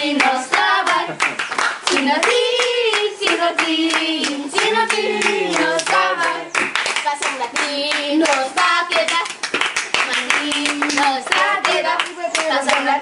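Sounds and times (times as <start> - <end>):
group singing together: 0.0 - 13.0
people clapping in rhythm: 0.0 - 13.0.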